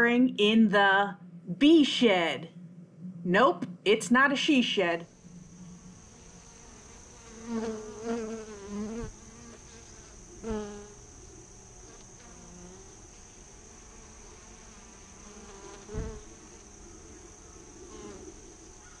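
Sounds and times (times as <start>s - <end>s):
low thumps: 0.5s - 4.4s
insects droning: 0.5s - 19.0s.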